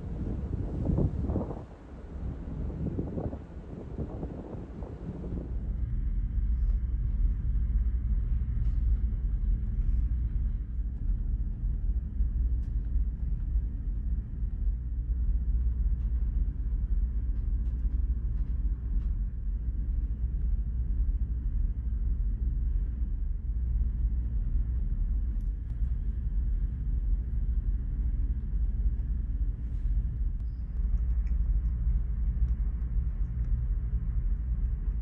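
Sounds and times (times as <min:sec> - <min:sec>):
faint small clicks: 0:30.4 - 0:34.8.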